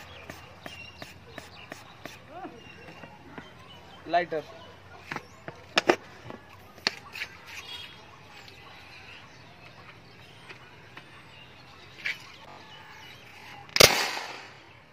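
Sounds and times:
faint bird chirps: 0.0s - 13.8s
homemade gun firing bang: 13.8s - 14.5s.

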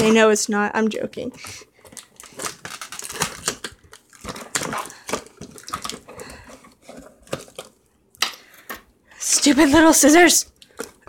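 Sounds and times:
packing tape and cardboard crinkling: 1.4s - 7.8s.

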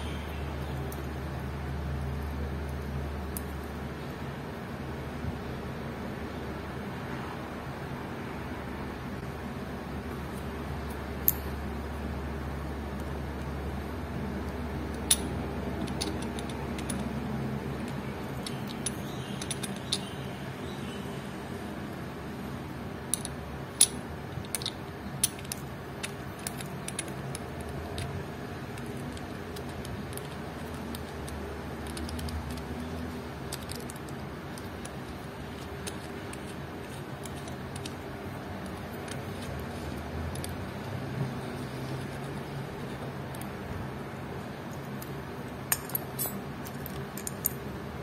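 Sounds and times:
faint steady hum: 0.0s - 48.0s
small metallic clicks and taps: 14.9s - 17.1s, 17.8s - 20.2s, 23.1s - 32.8s, 33.5s - 38.0s, 38.6s - 43.6s.

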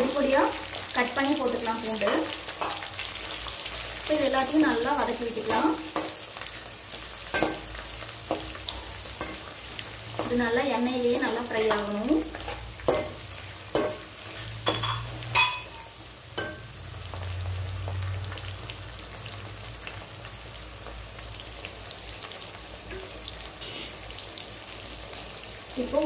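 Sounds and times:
food sizzling in hot oil: 0.0s - 26.0s
metal spoon scraping pan: 8.3s - 9.5s, 23.6s - 24.0s.

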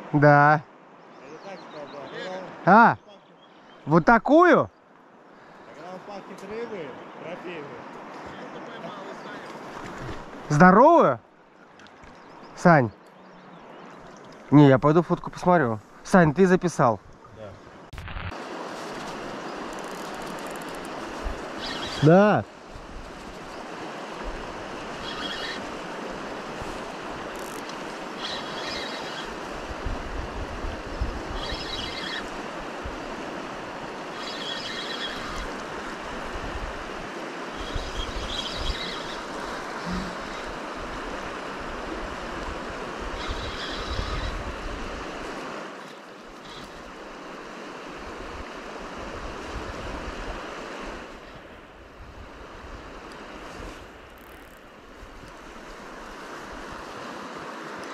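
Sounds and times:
river rushing over stones: 18.3s - 31.0s.

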